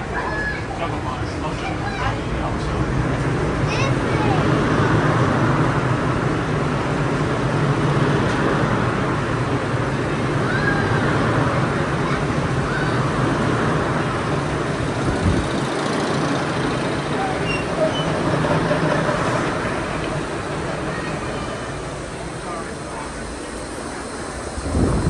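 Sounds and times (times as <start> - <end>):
faint voices: 0.0 - 6.2, 16.2 - 25.0
subway car hum and rumble: 0.0 - 25.0.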